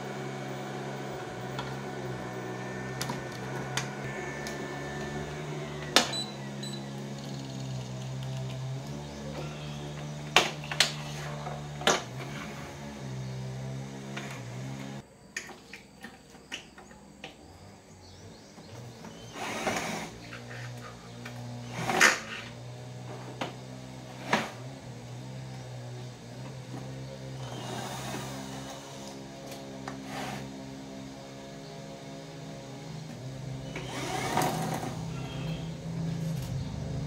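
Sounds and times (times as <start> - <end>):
cordless drill whirring: 0.0 - 13.1, 19.0 - 22.6, 27.4 - 30.6, 33.1 - 35.7.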